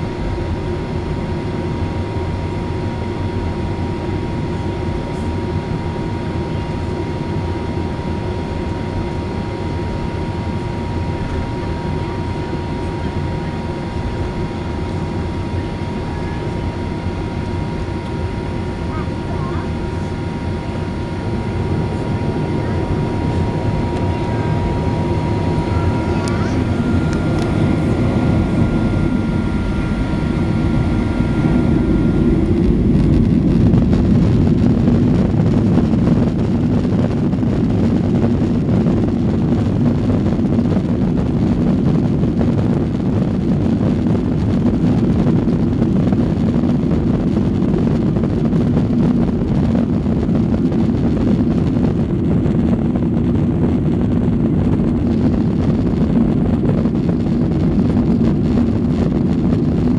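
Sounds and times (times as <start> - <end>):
faint high whine: 0.0 - 39.1
jet engines and runway rumble: 0.0 - 59.9.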